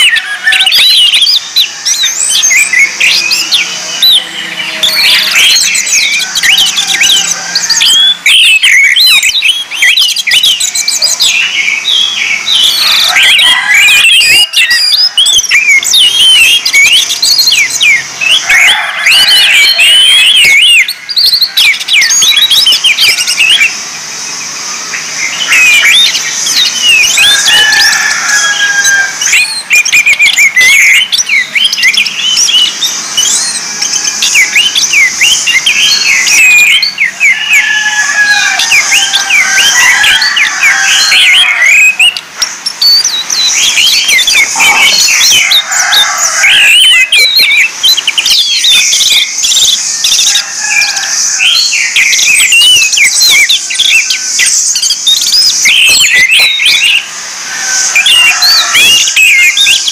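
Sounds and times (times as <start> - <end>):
steady high hiss: 20.8 - 46.6, 47.2 - 59.2.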